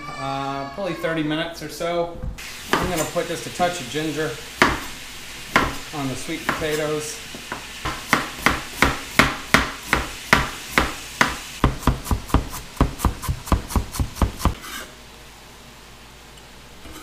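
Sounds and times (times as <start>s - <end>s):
knife chopping on cutting board: 4.6s - 4.9s, 5.5s - 5.8s, 6.4s - 14.6s.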